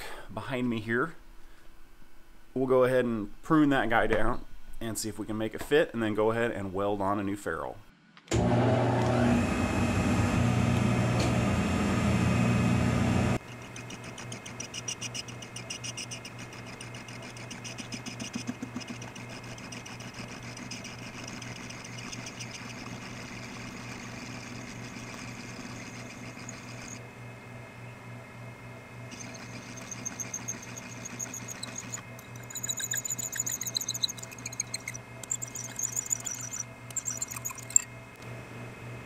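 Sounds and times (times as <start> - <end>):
lathe motor hum: 8.3 - 27.1, 29.1 - 37.8
high-pitched metal cutting: 13.4 - 27.0, 29.1 - 37.9.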